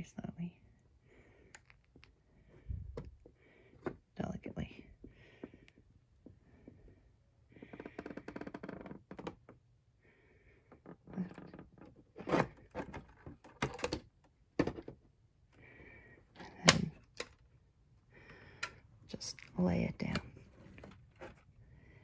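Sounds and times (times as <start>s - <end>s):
plastic knocks and clicks: 12.6s - 15.0s.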